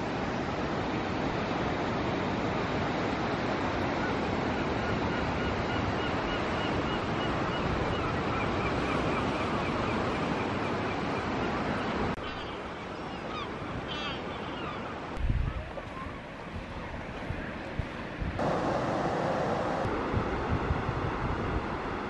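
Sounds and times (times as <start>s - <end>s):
sea water and waves rushing: 0.0s - 22.0s
wind buffeting microphone: 15.2s - 22.0s.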